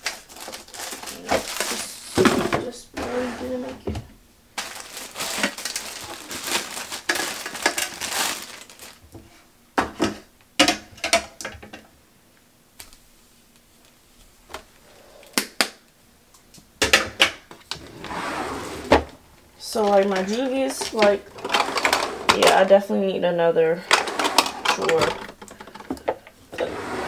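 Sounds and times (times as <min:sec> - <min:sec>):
plastic packaging crinkling: 0:00.0 - 0:02.2, 0:04.6 - 0:09.1, 0:19.7 - 0:22.7
plastic items clicking and knocking: 0:00.0 - 0:02.7, 0:04.6 - 0:09.0, 0:09.8 - 0:11.9, 0:19.8 - 0:22.7, 0:23.9 - 0:26.4.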